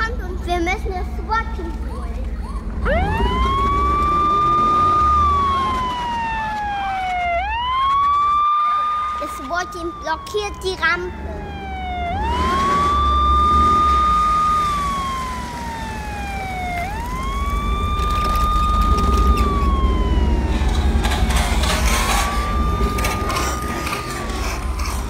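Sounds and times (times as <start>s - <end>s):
electronic toy siren: 2.4s - 25.0s.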